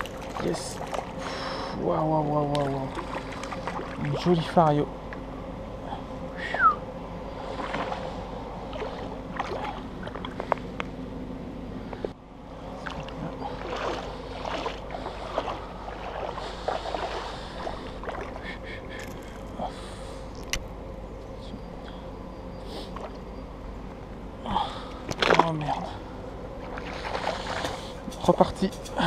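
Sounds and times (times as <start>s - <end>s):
water splashing and sloshing: 0.0s - 5.2s, 7.3s - 11.0s, 11.9s - 20.6s, 25.0s - 29.0s
river water flowing: 12.5s - 19.5s.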